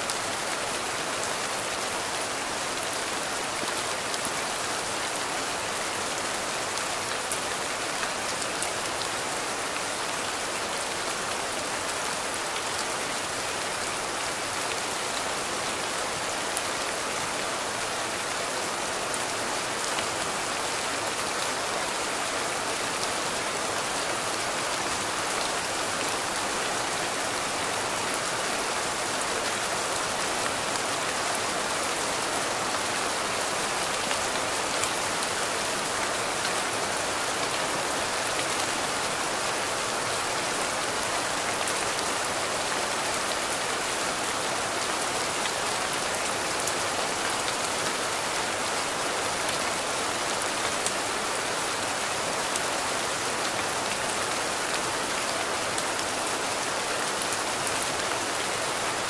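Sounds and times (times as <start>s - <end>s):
steady rain hiss: 0.0s - 59.0s.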